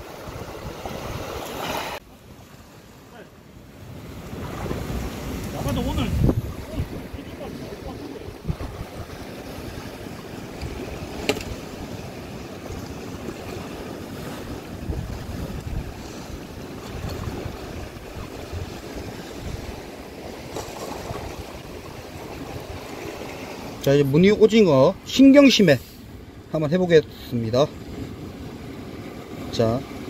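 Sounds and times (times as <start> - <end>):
wind buffeting microphone: 0.0 - 2.0, 3.9 - 25.4
sea surf on rocky shore: 0.0 - 30.0.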